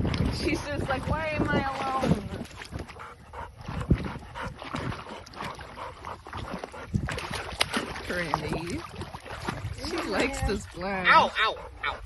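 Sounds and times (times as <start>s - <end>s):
sharp water slaps: 0.0s - 3.0s, 3.6s - 11.0s
dog splashing in shallow water: 0.0s - 11.9s.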